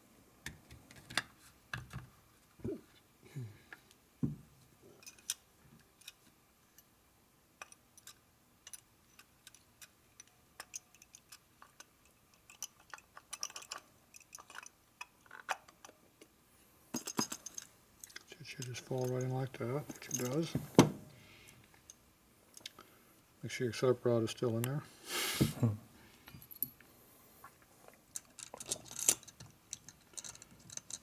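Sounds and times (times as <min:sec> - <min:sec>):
metal parts clicking and tapping: 0:05.0 - 0:06.9, 0:07.6 - 0:16.3, 0:17.0 - 0:19.3, 0:19.9 - 0:21.0, 0:28.1 - 0:31.0.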